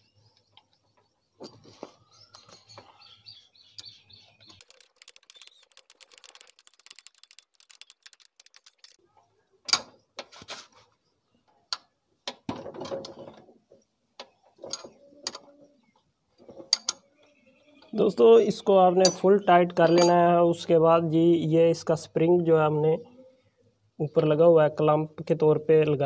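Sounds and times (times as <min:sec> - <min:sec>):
sharp metallic clicks: 0:03.8 - 0:09.0.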